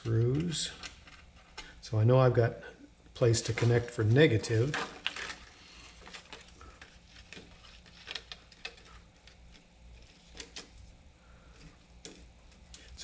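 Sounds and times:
low steady hum: 0.0s - 13.0s
plastic sheet clicking and crinkling: 3.4s - 10.9s, 11.6s - 13.0s.

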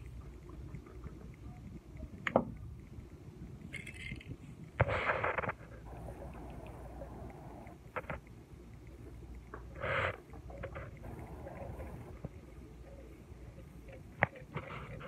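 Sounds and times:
faint crackles and clicks: 0.0s - 15.0s.

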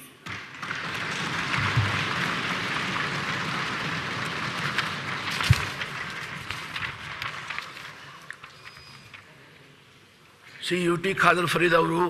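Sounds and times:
crowd applauding: 0.3s - 8.6s.

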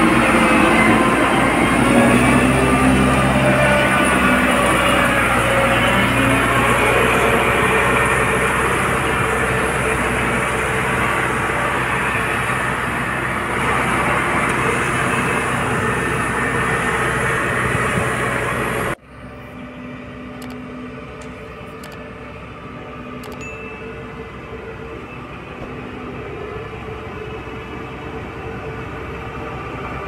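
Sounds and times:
road roller diesel engine: 0.0s - 30.0s
sharp clicks: 20.4s - 20.6s.

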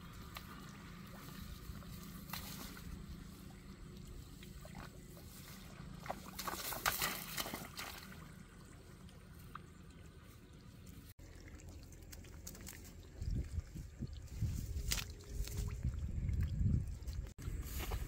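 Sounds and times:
rice stalks rustling: 0.0s - 3.4s, 17.5s - 18.0s
splashing in muddy water: 0.0s - 18.0s.

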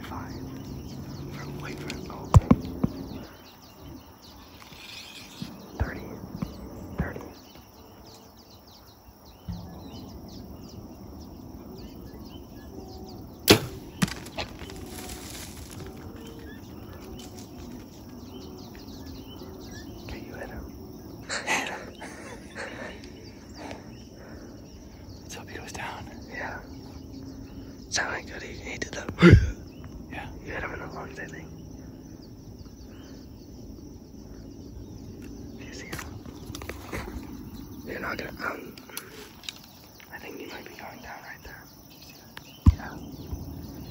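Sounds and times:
bow string snapping: 13.4s - 15.6s.

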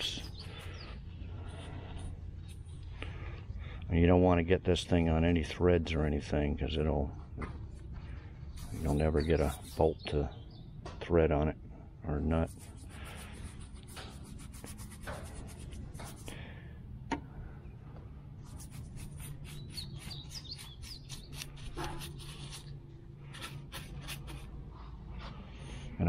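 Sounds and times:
bird chirping: 0.0s - 1.2s, 8.5s - 11.0s, 19.0s - 22.6s
low steady hum: 0.0s - 19.8s
paintbrush scrubbing on metal: 8.5s - 10.1s, 12.3s - 16.3s, 18.4s - 24.8s.

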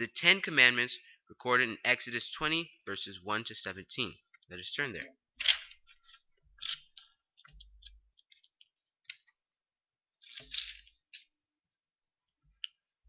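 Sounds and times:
paper pages rustling: 5.4s - 9.3s, 10.2s - 11.3s.

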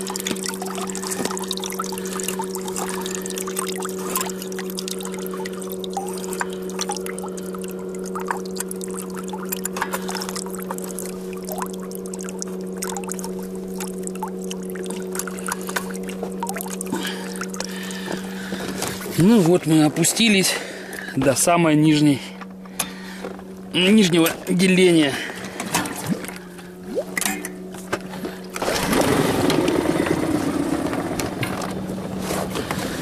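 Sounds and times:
water splashing and trickling: 0.0s - 21.4s, 23.8s - 27.6s
outboard motor idling: 0.0s - 33.0s.

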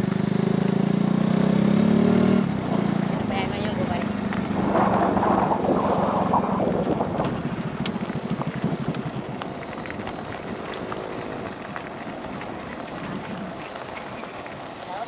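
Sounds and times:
motorcycle engine running: 0.0s - 15.0s
wind on microphone: 2.7s - 10.7s.

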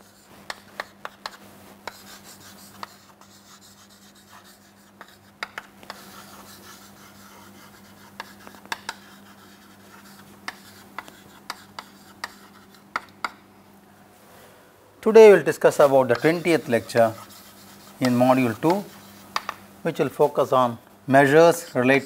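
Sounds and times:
chalk tapping and scratching on chalkboard: 0.0s - 13.4s, 15.6s - 19.6s
low electrical hum: 0.0s - 22.0s.

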